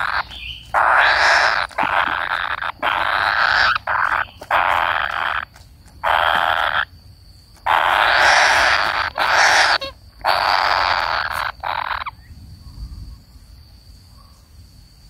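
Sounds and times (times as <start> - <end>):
young birds rasping begging calls: 0.0 - 7.0, 7.6 - 12.3.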